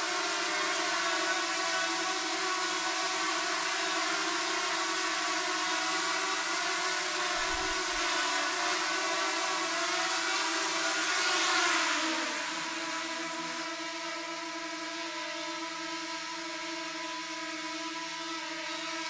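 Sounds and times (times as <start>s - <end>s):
drone propeller whine: 4.2s - 14.4s.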